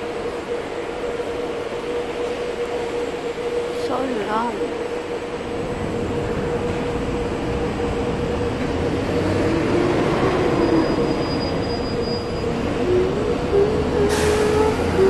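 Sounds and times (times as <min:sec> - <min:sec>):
train rumble: 0:00.0 - 0:15.0
train whine: 0:00.0 - 0:15.0.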